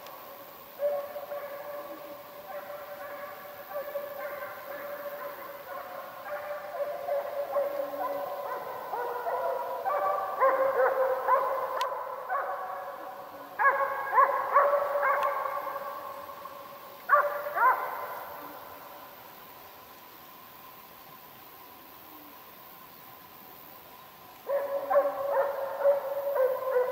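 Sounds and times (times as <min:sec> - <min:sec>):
hounds baying: 0:00.8 - 0:16.4, 0:17.1 - 0:18.8, 0:24.5 - 0:26.9.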